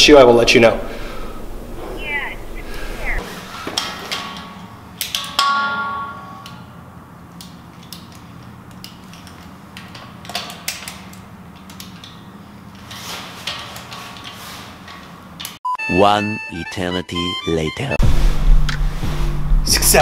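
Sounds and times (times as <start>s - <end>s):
metallic clank: 3.7s - 6.8s.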